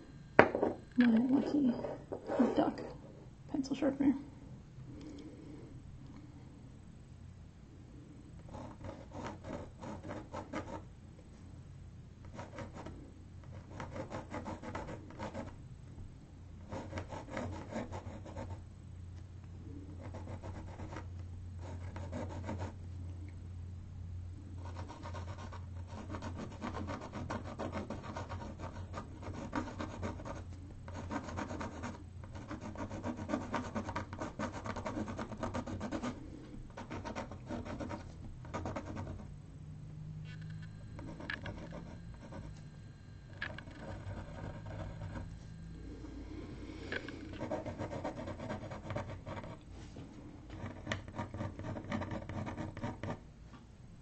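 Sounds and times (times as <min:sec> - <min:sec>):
faint steady low hum: 0:00.0 - 0:54.0
pencil scratching on board: 0:08.4 - 0:10.8, 0:12.3 - 0:15.6, 0:16.6 - 0:18.6, 0:20.0 - 0:22.8, 0:24.6 - 0:39.3, 0:41.0 - 0:42.6, 0:43.4 - 0:45.3, 0:47.3 - 0:49.6, 0:50.5 - 0:53.2.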